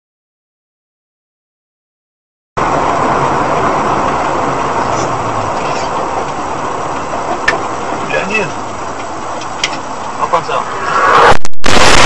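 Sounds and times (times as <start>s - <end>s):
moving vehicle engine and road noise: 2.6s - 12.0s.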